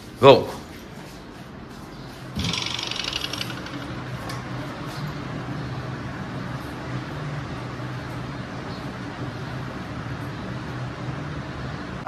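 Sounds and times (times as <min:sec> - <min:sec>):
rapid buzzing rattle: 0:02.4 - 0:04.2.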